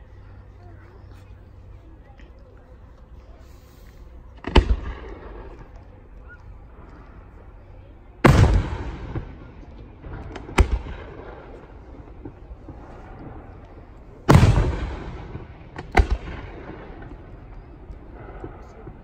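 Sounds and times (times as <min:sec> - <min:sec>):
firework booms with rolling echo: 0:04.4 - 0:05.8, 0:08.2 - 0:19.0
sharp firework bangs: 0:08.2 - 0:13.2, 0:14.2 - 0:17.2.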